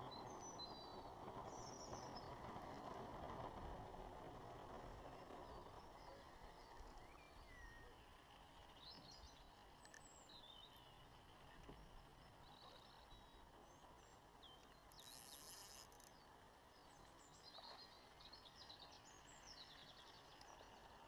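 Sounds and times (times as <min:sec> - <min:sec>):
faint birdsong chirps: 0:05.1 - 0:21.0.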